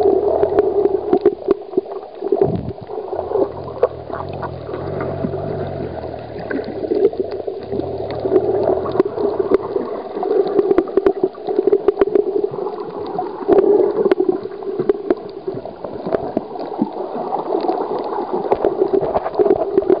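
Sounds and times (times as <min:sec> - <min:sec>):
sharp underwater clicks: 0:00.0 - 0:20.0
underwater sloshing and gurgling: 0:00.0 - 0:20.0
low rumble: 0:02.4 - 0:10.0.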